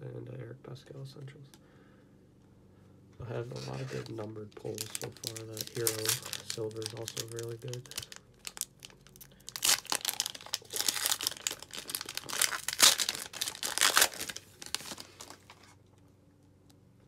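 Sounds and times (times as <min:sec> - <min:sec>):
foil pack tearing and crinkling: 0:03.6 - 0:15.7.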